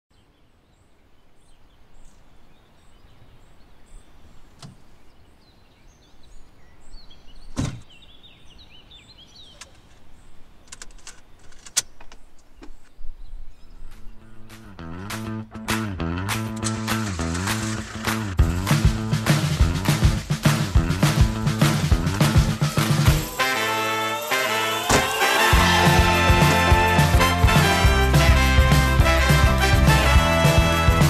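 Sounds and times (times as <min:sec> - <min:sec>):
faint bird chirps: 0:00.1 - 0:10.6.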